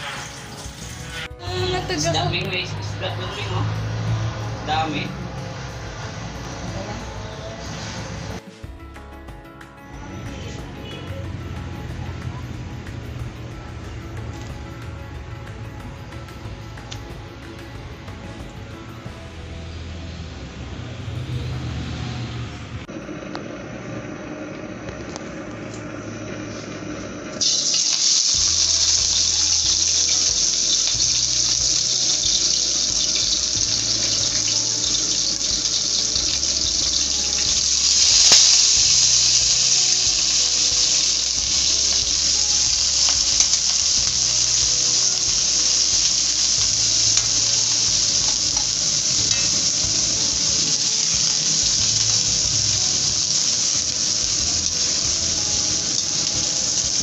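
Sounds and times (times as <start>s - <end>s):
shrimp sizzling in hot oil: 0.0s - 8.4s, 27.4s - 57.0s.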